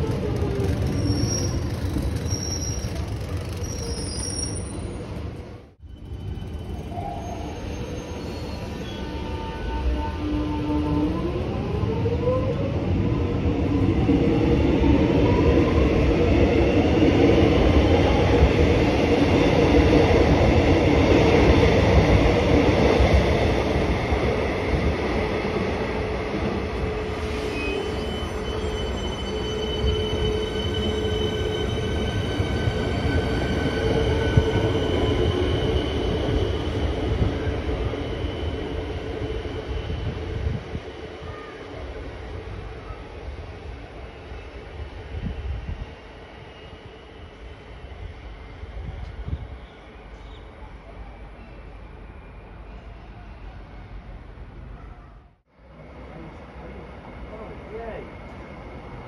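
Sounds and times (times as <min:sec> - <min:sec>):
train motor whine: 0:00.0 - 0:04.7
electric train passing: 0:00.0 - 0:54.7, 0:55.6 - 0:59.0
high wheel squeal: 0:00.6 - 0:05.2, 0:05.9 - 0:10.0, 0:27.1 - 0:37.0.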